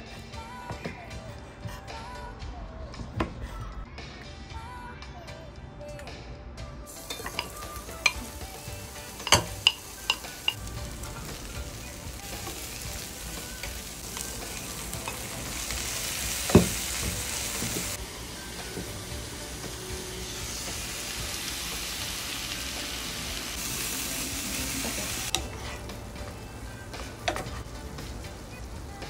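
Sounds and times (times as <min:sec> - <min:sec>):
onions and fat sizzling in pan: 0:06.9 - 0:29.0
utensils knocking against pan: 0:07.0 - 0:08.4, 0:09.0 - 0:11.3, 0:16.3 - 0:18.0.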